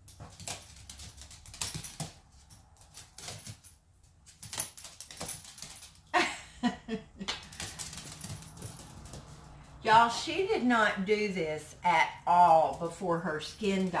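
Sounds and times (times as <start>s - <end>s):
dog claws clicking on floor: 0.0s - 6.2s, 7.2s - 9.6s
collar jingling: 0.2s - 6.4s, 7.4s - 9.6s.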